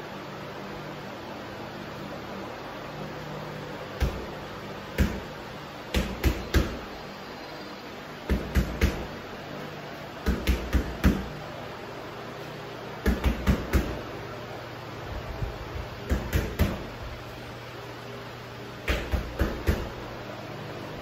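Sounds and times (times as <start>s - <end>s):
steady low hum: 0.0s - 21.0s
punches thudding into punching bag: 4.0s - 6.9s, 8.3s - 9.1s, 10.2s - 11.3s, 13.0s - 14.0s, 16.1s - 16.9s, 18.8s - 20.0s.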